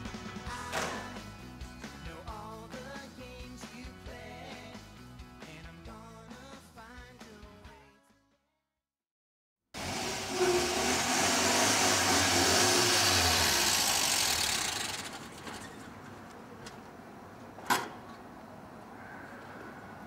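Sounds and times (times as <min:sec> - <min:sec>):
car engine and tyre noise: 0:09.8 - 0:19.0.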